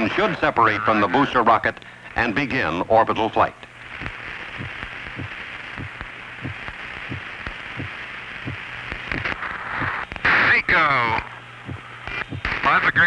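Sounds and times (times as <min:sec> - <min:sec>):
radio static hiss: 0:00.0 - 0:13.0
soft low thumps: 0:04.6 - 0:08.7, 0:11.6 - 0:12.5.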